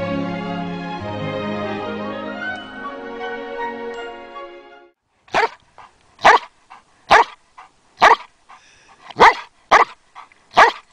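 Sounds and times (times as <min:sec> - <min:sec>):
background music: 0:00.0 - 0:05.0
dog barking: 0:05.3 - 0:05.6, 0:06.2 - 0:06.5, 0:07.1 - 0:07.4, 0:08.0 - 0:08.3, 0:09.1 - 0:10.9.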